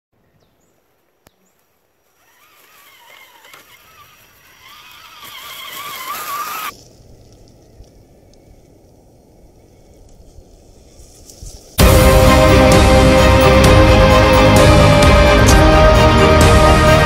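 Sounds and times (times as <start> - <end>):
electric motor whine: 2.2 - 6.7.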